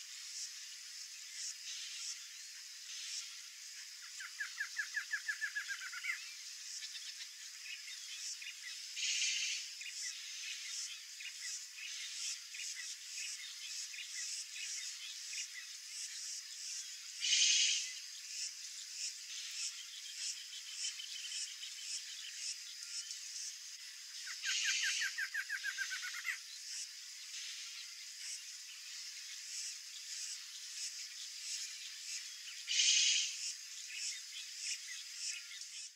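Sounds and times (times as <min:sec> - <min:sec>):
frogs calling: 0:00.0 - 0:35.9
insects chirping: 0:00.0 - 0:35.9
fast rattling call: 0:32.7 - 0:33.4.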